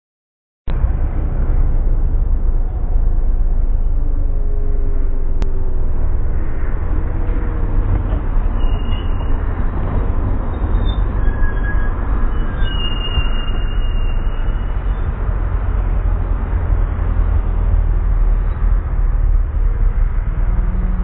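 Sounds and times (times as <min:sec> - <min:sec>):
loud low car rumble: 0:00.7 - 0:21.0.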